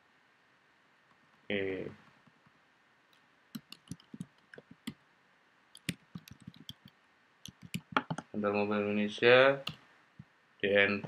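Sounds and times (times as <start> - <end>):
computer keyboard typing: 3.6 - 5.0, 5.8 - 6.9, 7.5 - 8.2.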